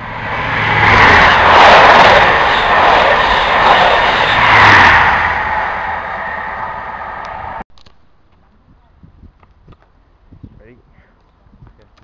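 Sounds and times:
diesel train passing at speed: 0.0 - 7.6.

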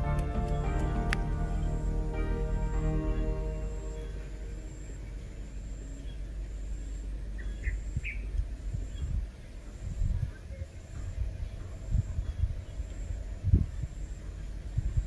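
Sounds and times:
background music: 0.0 - 6.0
low background rumble: 0.0 - 15.0.

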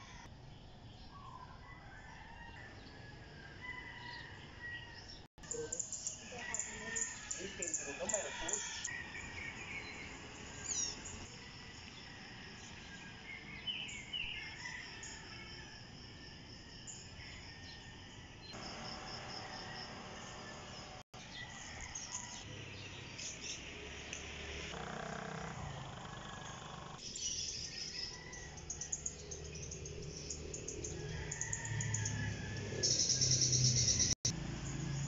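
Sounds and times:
insects trilling: 5.4 - 21.0.

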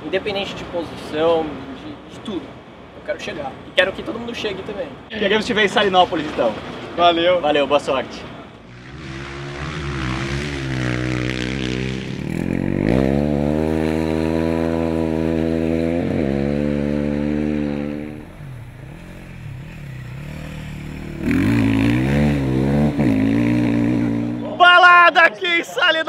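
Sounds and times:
motorcycle engines revving: 8.2 - 24.6.

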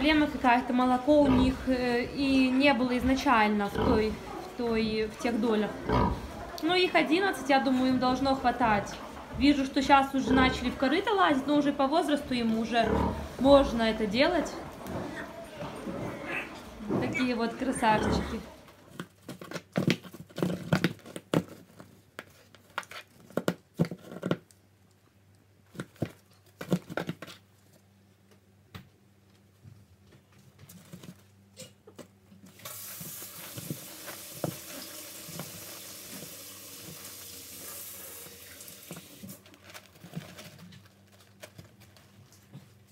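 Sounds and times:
kitten scratching cardboard box: 18.9 - 24.5, 39.3 - 42.2
steady hiss: 32.6 - 39.2.

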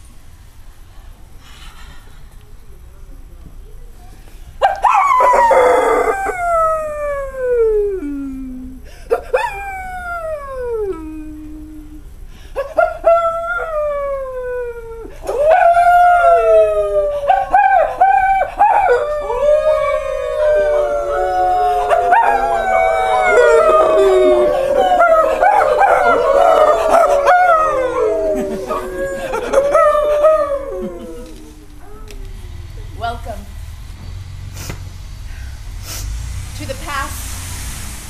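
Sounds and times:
people howling like wolves: 4.6 - 32.8.

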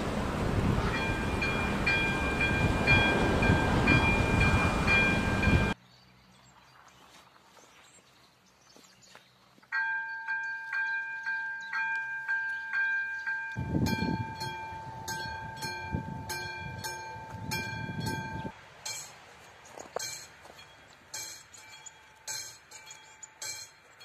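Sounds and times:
low rumbling noise: 0.0 - 5.8
level crossing warning bell: 0.8 - 5.8, 9.7 - 19.2, 20.0 - 24.0.

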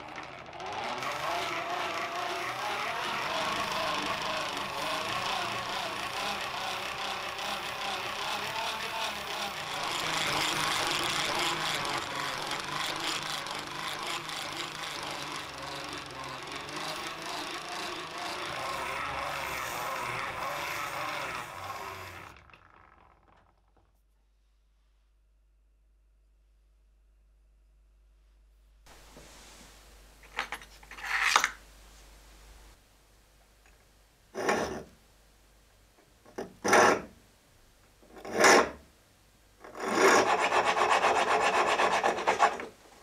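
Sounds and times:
knife grinding on bench grinder: 0.0 - 23.4, 39.6 - 42.7.

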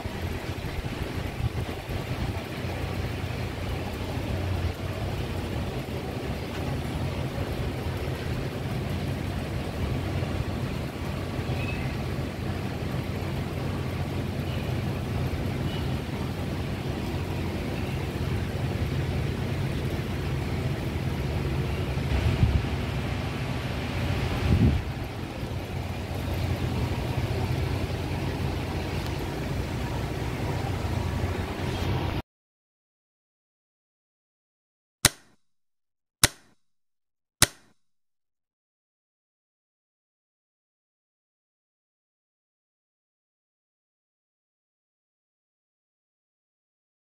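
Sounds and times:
urban background rumble: 0.0 - 32.2.

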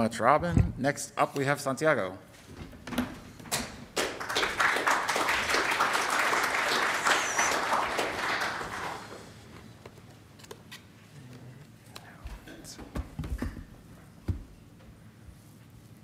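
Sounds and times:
audience applauding: 3.9 - 9.4.

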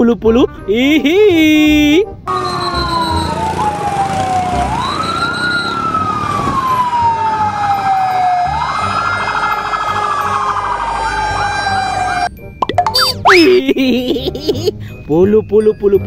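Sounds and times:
fire engine sirens wailing: 2.3 - 12.4
warbling siren: 2.3 - 13.6.

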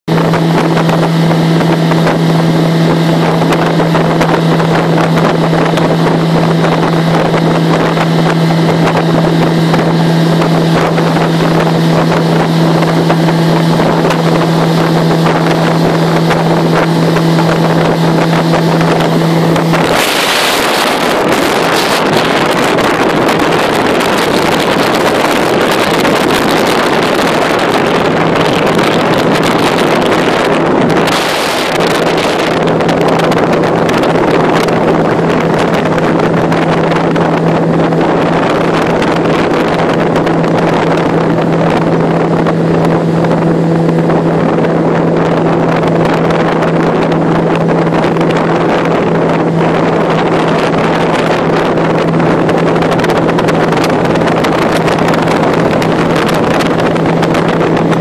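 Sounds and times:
outboard motor drone: 0.0 - 58.0
water rushing: 0.0 - 58.0
wind on microphone: 0.0 - 58.0.

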